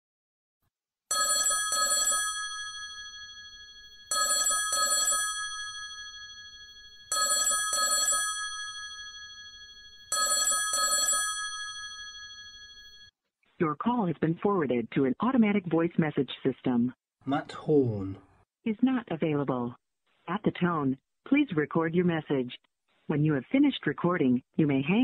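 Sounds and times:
telephone ringing: 1.1s - 13.1s.

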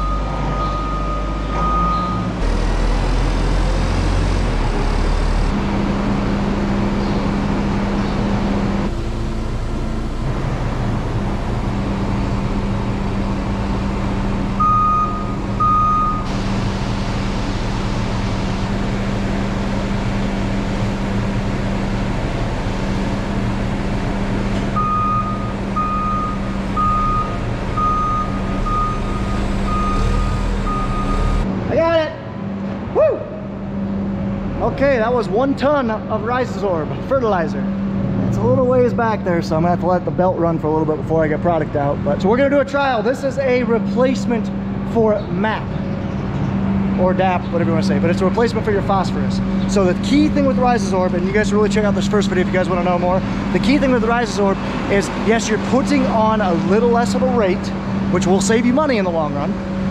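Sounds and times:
backup alarm beeping: 0.0s - 2.4s, 14.6s - 16.3s, 24.8s - 31.5s
forklift engine running: 0.0s - 39.6s, 43.5s - 59.9s.

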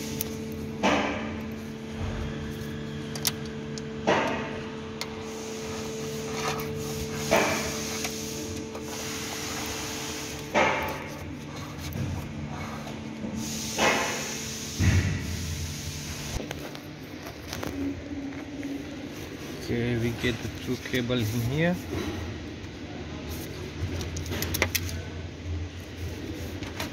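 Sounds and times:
steady low hum: 0.0s - 26.9s
cable rubbing on carpet: 5.4s - 10.4s.

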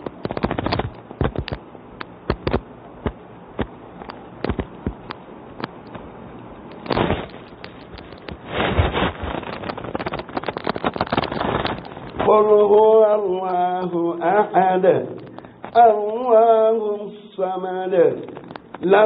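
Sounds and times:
sharp clicks and crackles: 0.0s - 16.8s, 17.4s - 19.0s
low hiss: 0.0s - 19.0s
loud burst of noise: 6.7s - 13.3s.

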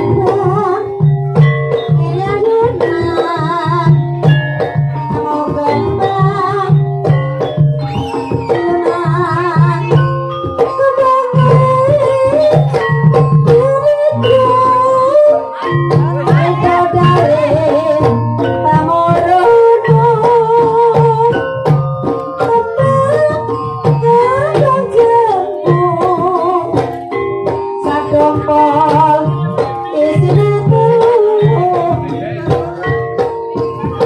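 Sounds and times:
hand drum strokes: 0.0s - 34.0s
person singing wavering melody: 0.0s - 34.0s
tuned percussion: 0.0s - 34.0s.

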